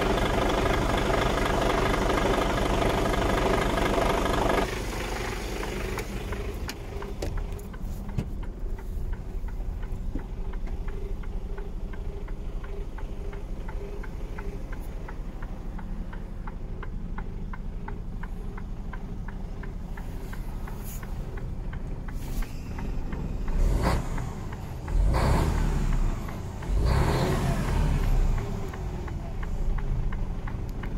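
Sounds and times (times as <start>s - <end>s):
diesel engine idling: 0.0s - 30.9s
light regular ticking: 0.0s - 30.9s
engine revving: 23.0s - 30.9s.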